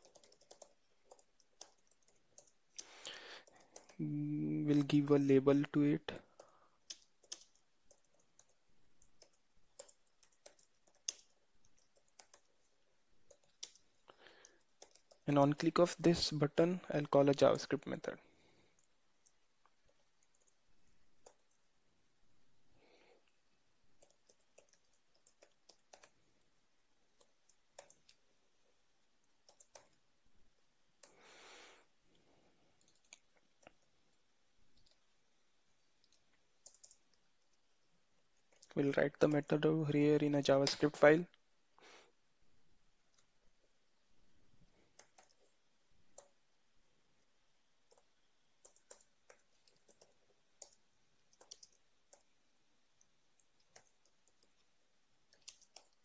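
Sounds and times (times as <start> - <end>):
computer keyboard typing: 0.0 - 16.1, 18.7 - 21.7, 23.9 - 30.1, 32.8 - 35.1, 35.8 - 37.6, 38.4 - 39.0, 44.9 - 46.5, 47.8 - 52.4, 53.0 - 56.0.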